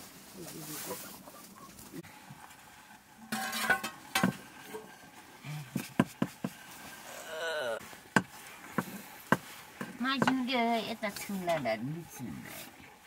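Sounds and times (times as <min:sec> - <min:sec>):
wooden stick scraping metal pot: 0:02.4 - 0:07.2, 0:07.8 - 0:12.9.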